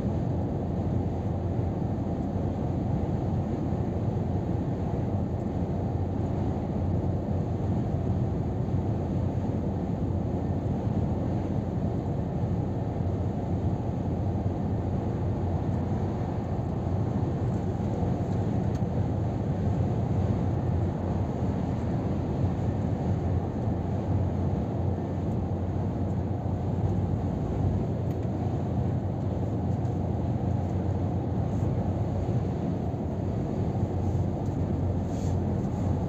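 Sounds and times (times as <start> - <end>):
road noise: 0.0 - 36.0
truck engine drone: 19.2 - 36.0.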